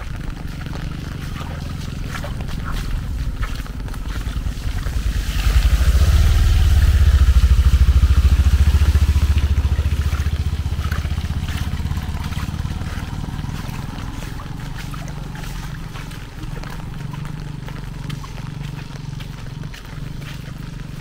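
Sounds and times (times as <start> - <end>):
motorcycle engine passing: 0.0 - 21.0
rain hissing: 0.9 - 16.2.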